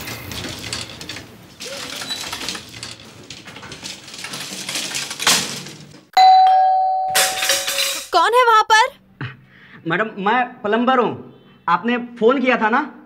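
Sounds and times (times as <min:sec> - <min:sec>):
doorbell chime: 0:06.2 - 0:07.7.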